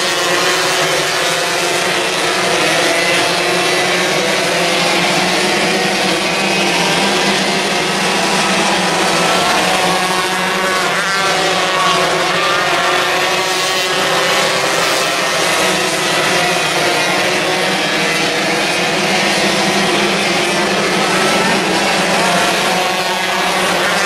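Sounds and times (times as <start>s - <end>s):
racing car engines at high revs: 0.0s - 24.0s.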